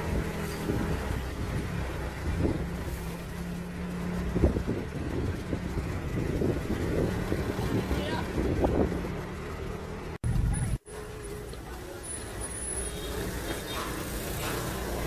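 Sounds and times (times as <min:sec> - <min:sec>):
road noise: 0:00.0 - 0:15.0
vehicle engine running: 0:00.0 - 0:15.0
wind buffeting microphone: 0:04.0 - 0:09.4.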